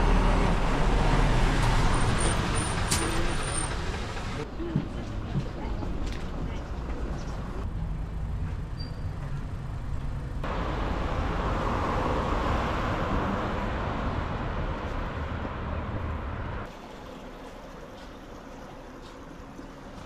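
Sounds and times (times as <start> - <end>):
car passing: 10.4 - 16.7.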